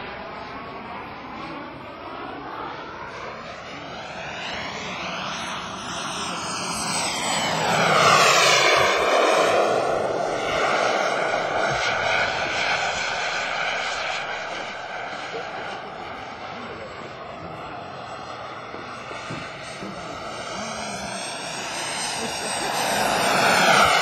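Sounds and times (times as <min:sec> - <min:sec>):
model jet engine flying past: 0:00.0 - 0:24.0
high whine dropping in pitch: 0:19.7 - 0:24.0.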